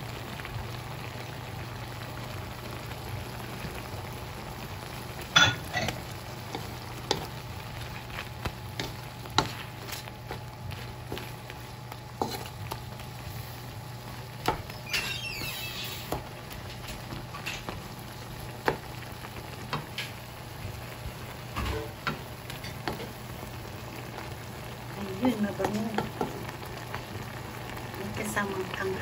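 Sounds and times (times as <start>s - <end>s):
sauce sizzling: 0.0s - 29.0s
wooden spatula stirring in a wok: 3.3s - 14.8s, 16.0s - 29.0s
spatula scraping pan: 5.4s - 11.4s, 12.2s - 12.8s.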